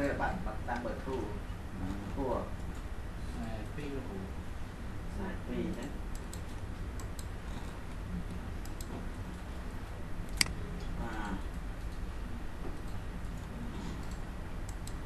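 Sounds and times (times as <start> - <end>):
low steady hum: 0.0 - 15.0
computer mouse clicking: 6.1 - 8.0, 8.6 - 9.0, 10.3 - 10.6, 12.7 - 15.0.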